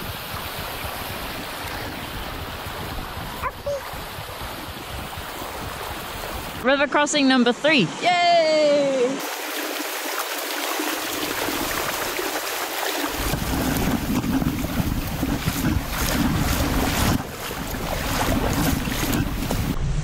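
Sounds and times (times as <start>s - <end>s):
stream rushing over rocks: 0.0s - 6.7s, 7.7s - 19.8s
splashes of wading steps: 9.0s - 19.8s
low microphone rumble: 13.2s - 20.0s.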